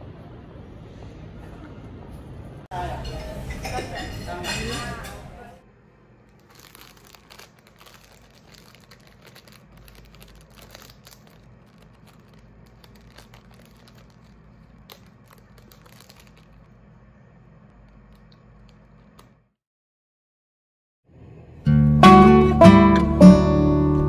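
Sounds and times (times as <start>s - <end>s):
crinkling and crackling: 6.2s - 19.4s.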